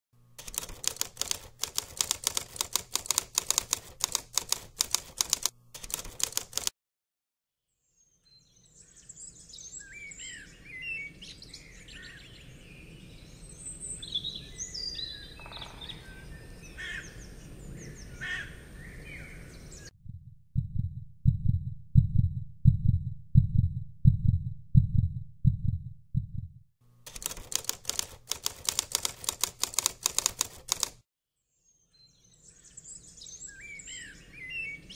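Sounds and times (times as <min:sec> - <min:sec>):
typewriter key clicks: 0:00.4 - 0:06.7, 0:27.1 - 0:31.0
birds singing: 0:08.0 - 0:19.9, 0:31.7 - 0:34.9
heartbeat-like thumps: 0:20.0 - 0:26.6.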